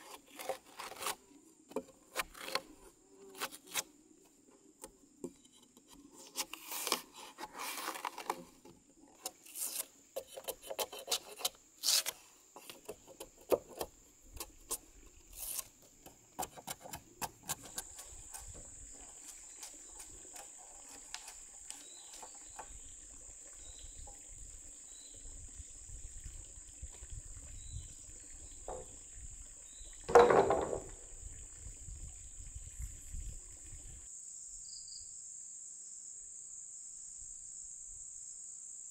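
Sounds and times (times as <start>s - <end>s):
wood scraping and clicking: 0.0s - 3.9s, 4.8s - 22.7s, 30.1s - 31.0s
loud wooden knock: 30.1s - 31.0s.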